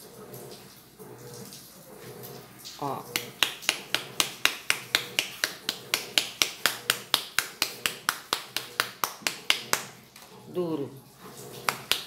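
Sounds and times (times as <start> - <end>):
hand slapping bar of soap: 3.2 - 10.0, 11.6 - 12.0.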